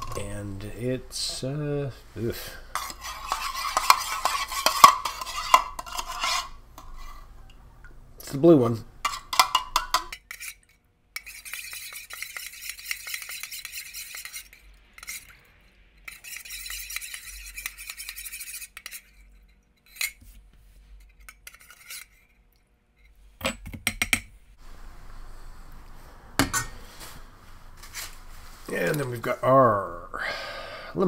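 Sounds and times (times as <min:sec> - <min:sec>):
spoon scraping metal cup: 0:02.7 - 0:07.3, 0:09.0 - 0:15.4, 0:16.0 - 0:20.4, 0:21.0 - 0:22.4.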